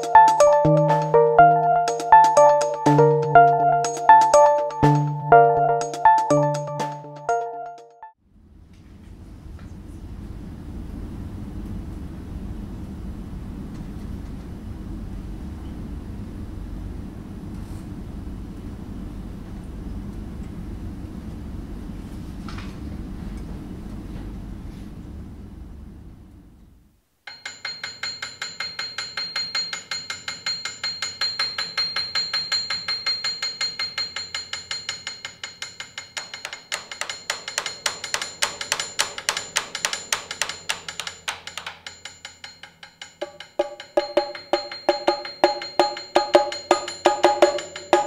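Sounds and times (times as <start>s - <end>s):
rapid metallic percussion strikes: 0.0s - 1.2s, 1.8s - 5.2s, 27.3s - 48.0s.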